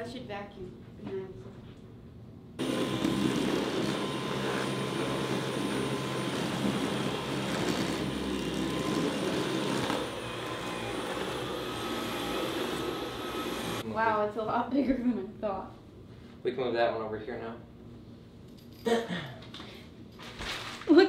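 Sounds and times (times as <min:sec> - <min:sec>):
stick vacuum motor whine: 0:02.6 - 0:13.8.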